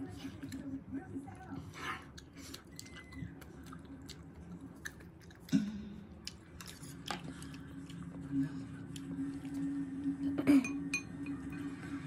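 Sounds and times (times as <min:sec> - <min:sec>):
person chewing food: 0:01.9 - 0:10.2.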